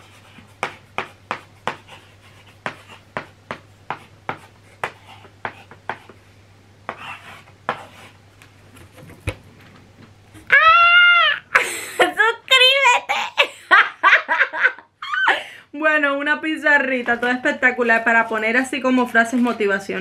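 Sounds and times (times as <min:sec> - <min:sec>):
chalk tapping and scratching: 0:00.0 - 0:06.2, 0:06.9 - 0:08.2
person crying out: 0:10.4 - 0:13.8, 0:15.0 - 0:15.6.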